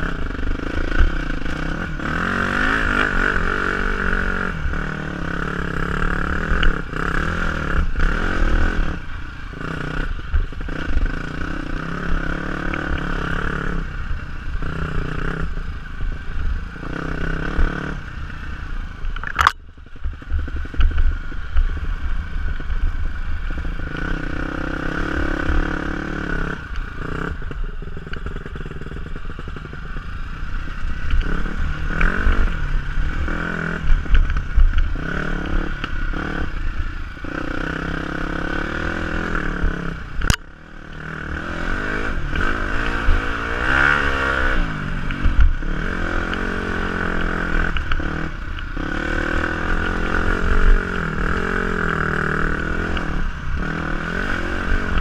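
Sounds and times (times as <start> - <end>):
dirt bike engine revving: 0.0 - 18.6, 22.8 - 55.0
sharp click: 19.2 - 19.6.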